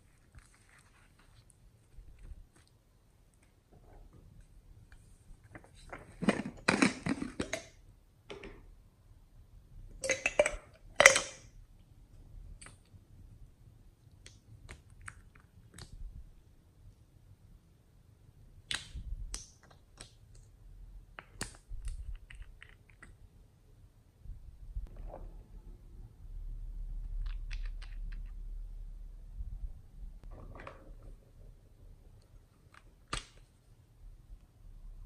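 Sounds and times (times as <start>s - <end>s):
plastic containers clicking and rattling: 5.8s - 8.6s.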